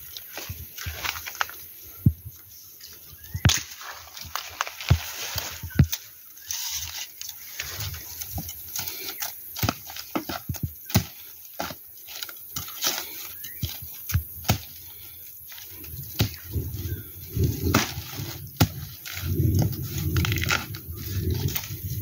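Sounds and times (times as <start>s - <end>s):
dry leaves rustling: 0.0s - 22.0s
machete chopping bamboo: 8.7s - 14.8s, 17.7s - 19.2s.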